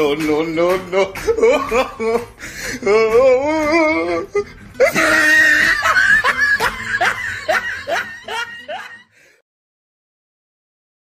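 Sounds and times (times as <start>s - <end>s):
person laughing loudly: 1.0s - 9.2s.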